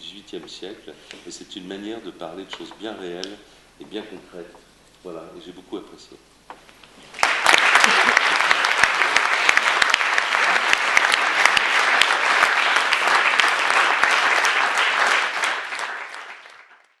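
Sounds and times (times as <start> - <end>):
audience applauding: 7.1 - 17.0.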